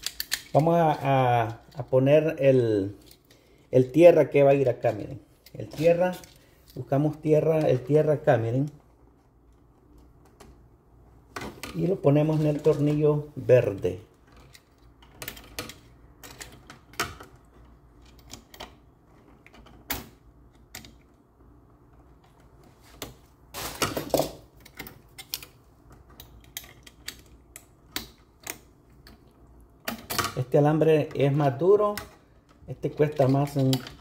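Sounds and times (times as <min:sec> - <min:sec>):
copper wire clicking and scraping: 0:00.0 - 0:01.9.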